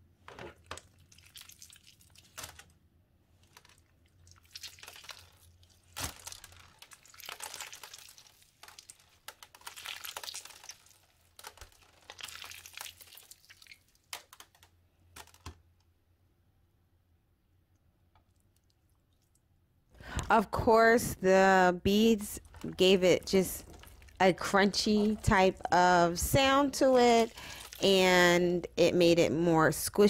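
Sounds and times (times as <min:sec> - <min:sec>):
slime squelching: 0:00.6 - 0:02.7, 0:03.4 - 0:14.5, 0:21.6 - 0:28.7
slime crackling and popping: 0:03.5 - 0:14.6, 0:22.4 - 0:25.7.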